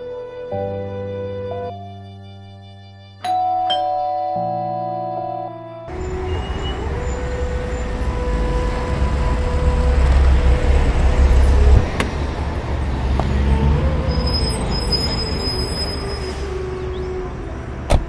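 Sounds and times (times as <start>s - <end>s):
street traffic: 3.2s - 18.0s
car engine rumble: 5.9s - 18.0s.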